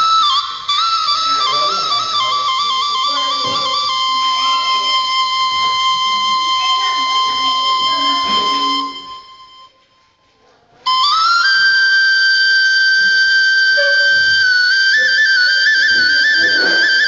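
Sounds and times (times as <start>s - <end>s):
flute playing trills: 0.0s - 9.8s, 10.9s - 17.0s.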